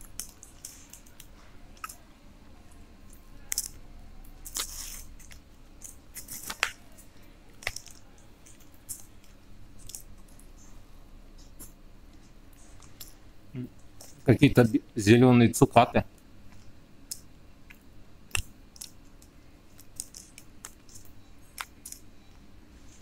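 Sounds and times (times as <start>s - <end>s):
chewing and mouth sounds: 0.0s - 2.1s, 3.0s - 10.7s.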